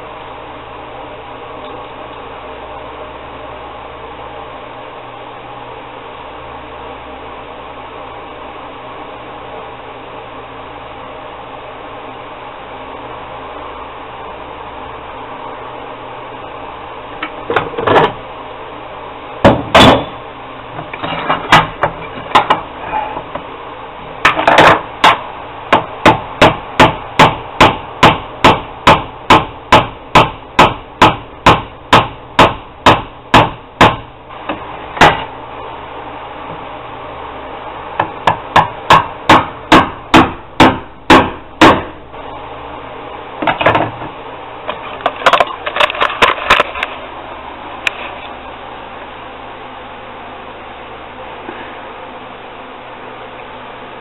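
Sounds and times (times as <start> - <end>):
hammer striking antler: 19.5 - 20.2, 24.3 - 34.0, 38.3 - 42.0.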